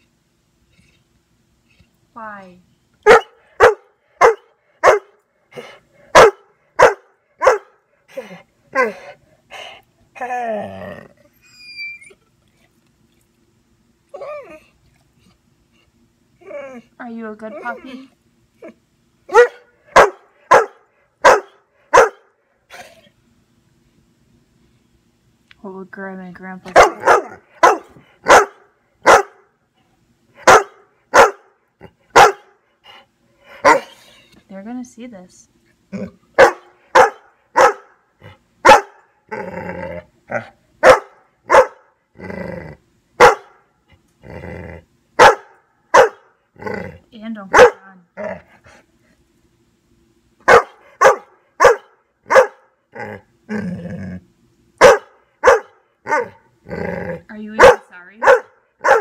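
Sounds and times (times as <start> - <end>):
dog barking: 3.1 - 5.2, 6.1 - 7.8, 19.3 - 22.3, 26.7 - 29.5, 30.4 - 31.5, 32.1 - 32.6, 33.6 - 33.9, 36.4 - 38.0, 38.6 - 39.0, 40.8 - 41.9, 43.2 - 43.6, 45.2 - 46.3, 47.5 - 47.9, 50.5 - 52.7, 54.8 - 56.4, 57.6 - 59.0
dog grumbling: 10.2 - 11.3, 35.9 - 36.2, 39.3 - 40.6, 42.1 - 42.8, 44.2 - 44.9, 46.6 - 47.1, 52.9 - 54.3, 56.1 - 57.4.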